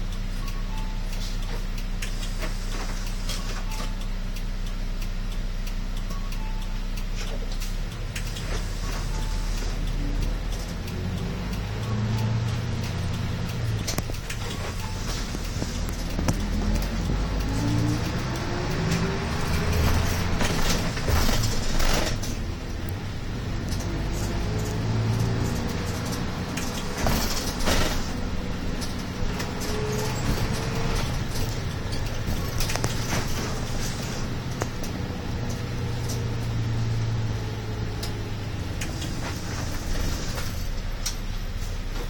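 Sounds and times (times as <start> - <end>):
bus engine running: 0.0 - 42.0
road noise: 0.0 - 42.0.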